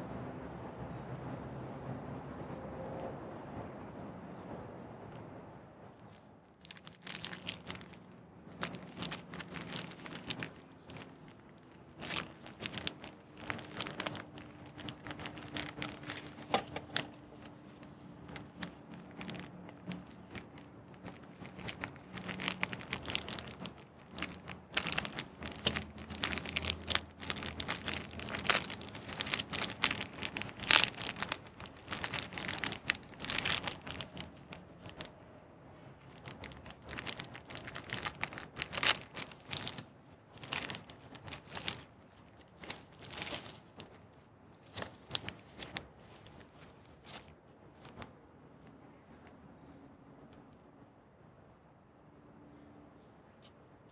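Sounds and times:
plastic packaging crinkling: 0:05.9 - 0:35.2, 0:36.0 - 0:48.8.

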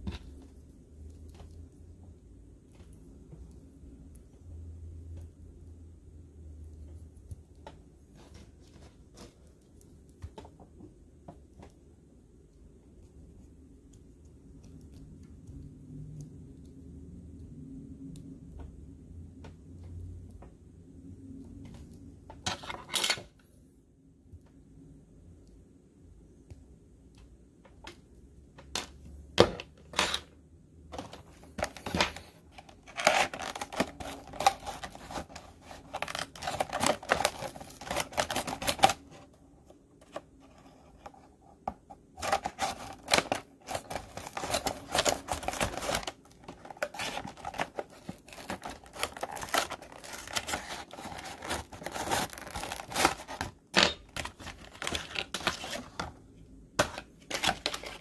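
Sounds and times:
plastic packaging crinkling: 0:30.9 - 0:39.4, 0:42.2 - 0:56.0, 0:56.8 - 0:58.0.

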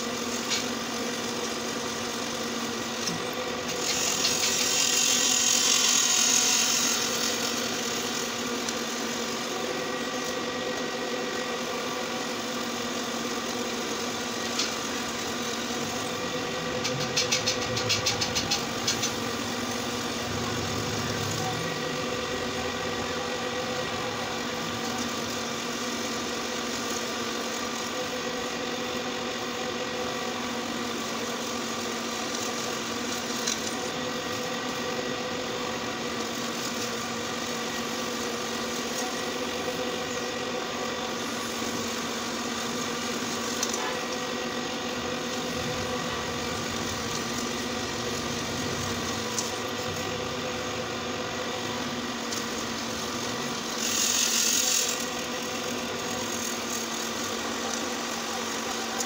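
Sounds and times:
drill bit cutting steel: 0:00.0 - 0:28.5, 0:30.2 - 0:59.0
pillar drill motor running: 0:00.0 - 0:59.0
quick ticks: 0:16.8 - 0:19.2.

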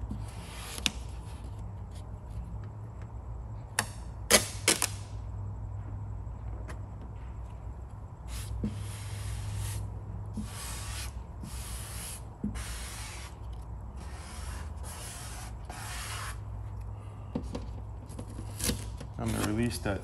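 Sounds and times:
squeegee rubbing on vinyl: 0:08.3 - 0:13.4, 0:14.0 - 0:16.4.

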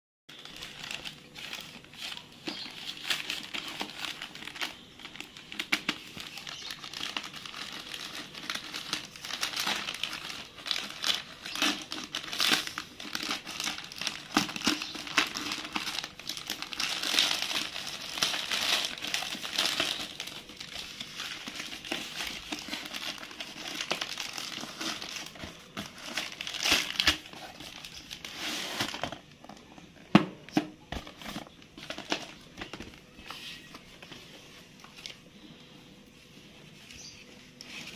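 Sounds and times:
plastic packaging crinkling: 0:00.3 - 0:35.4
scissors cutting plastic: 0:05.5 - 0:20.2.

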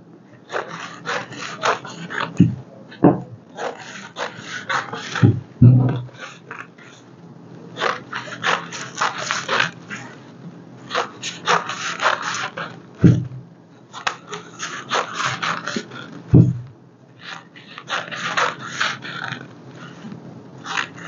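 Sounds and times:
dull knock: 0:02.4 - 0:03.4, 0:05.2 - 0:06.0, 0:16.4 - 0:16.7.

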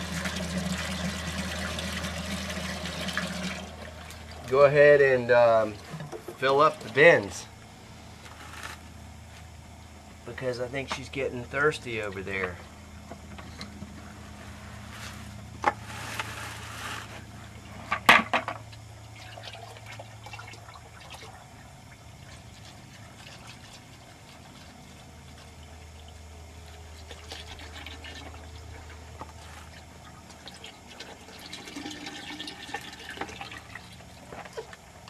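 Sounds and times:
fuel running into a tank: 0:00.0 - 0:04.6, 0:18.8 - 0:35.0.

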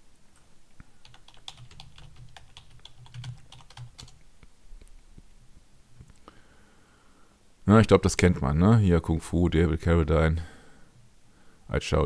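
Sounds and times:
computer keyboard typing: 0:01.0 - 0:04.2.

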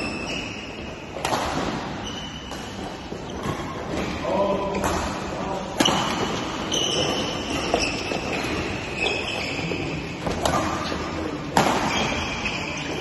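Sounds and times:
sports hall background noise: 0:00.0 - 0:13.0
racket striking shuttlecock: 0:01.2 - 0:02.8.

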